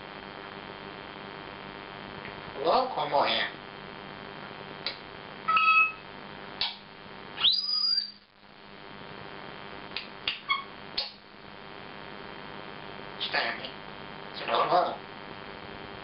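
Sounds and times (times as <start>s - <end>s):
parrot call: 5.5s - 6.0s, 7.4s - 8.2s
parrot whistling: 5.5s - 6.0s, 7.4s - 8.2s.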